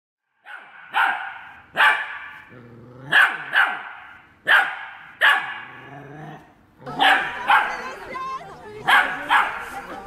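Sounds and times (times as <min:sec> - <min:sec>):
puppy barking: 0:00.4 - 0:02.5, 0:03.1 - 0:05.9, 0:06.9 - 0:08.0, 0:08.8 - 0:09.9
dog growling: 0:02.5 - 0:03.4, 0:05.7 - 0:07.5.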